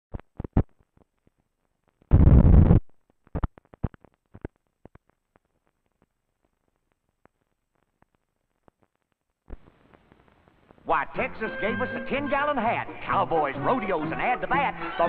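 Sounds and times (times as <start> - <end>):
film soundtrack clicks and pops: 0.1 - 10.8
rough burst of noise: 2.1 - 3.5.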